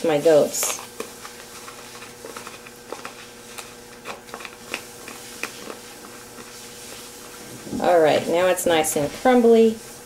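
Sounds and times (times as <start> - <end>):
plastic spoon stirring dough: 0.0 - 10.0.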